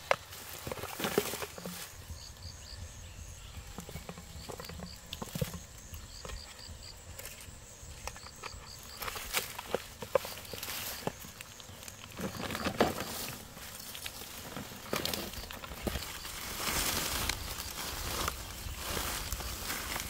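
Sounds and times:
rustling leaves and plastic: 0.0 - 20.0
plastic bottles knocking: 3.7 - 6.6, 8.1 - 11.3, 12.2 - 16.2.

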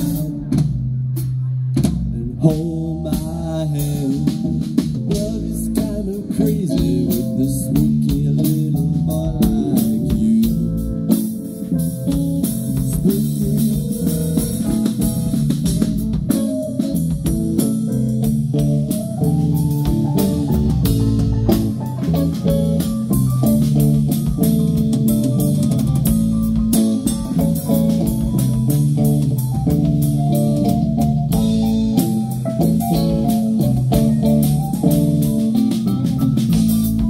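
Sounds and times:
bass guitar: 0.0 - 37.0
drum kit hits: 0.0 - 37.0
electric keyboard: 2.4 - 37.0.

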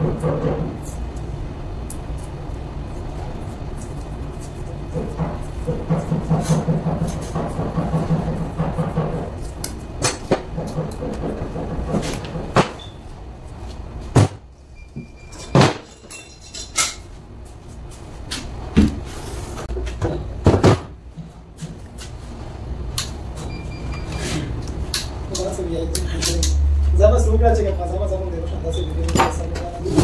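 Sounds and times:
tools knocking on workbench: 5.0 - 9.3.

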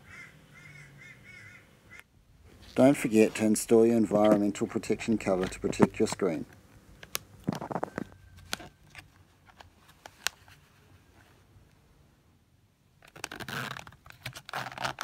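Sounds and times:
zipper being pulled: 13.0 - 15.0.

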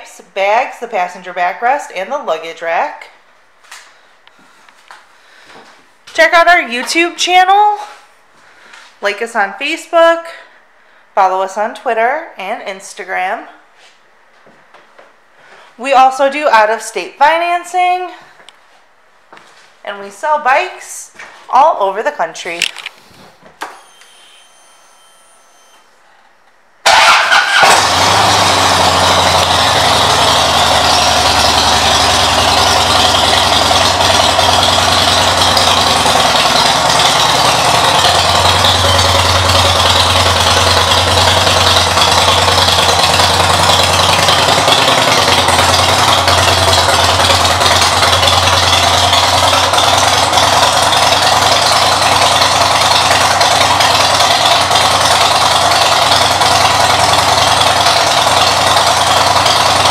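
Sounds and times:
motorcycle engine starting and idling: 26.8 - 59.9.

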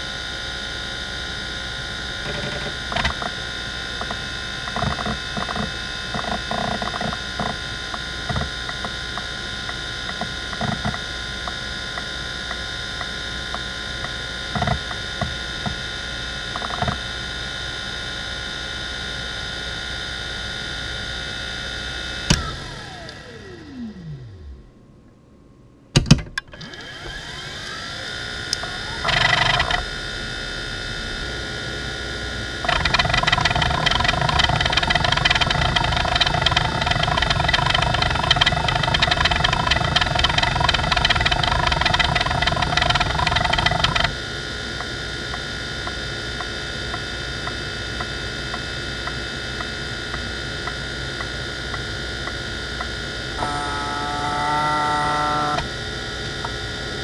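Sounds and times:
spindle motor whine: 0.0 - 25.2, 26.4 - 57.0
hard drive click: 2.2 - 3.4, 28.5 - 29.8, 32.6 - 44.1
faint regular ticks: 4.0 - 15.8, 28.5 - 29.8, 32.6 - 44.1
drive heads chattering: 32.6 - 44.1.

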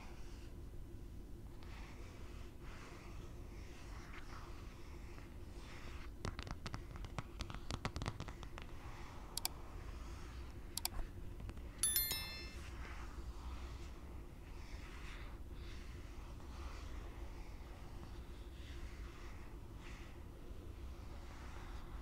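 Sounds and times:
bell chime: 11.8 - 12.7.

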